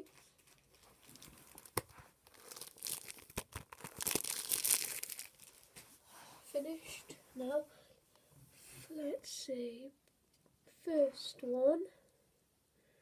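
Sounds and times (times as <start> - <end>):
foil wrappers crinkling: 0.2 - 5.7.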